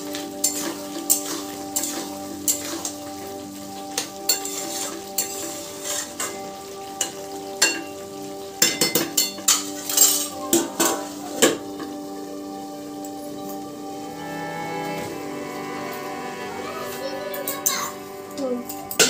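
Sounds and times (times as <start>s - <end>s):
curry sizzling: 0.0s - 19.0s
spatula scraping metal pan: 0.4s - 2.8s.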